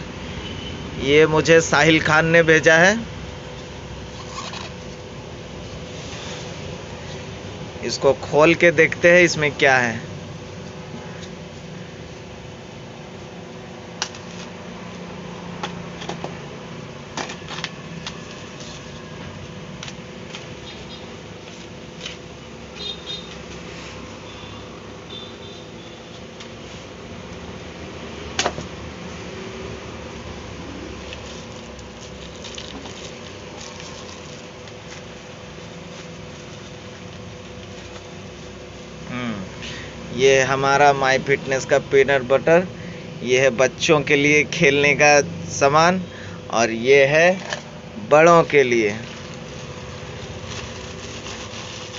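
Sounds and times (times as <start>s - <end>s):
fan hum: 0.0s - 51.9s
plastic wrap crinkling: 31.1s - 35.2s, 48.9s - 51.9s.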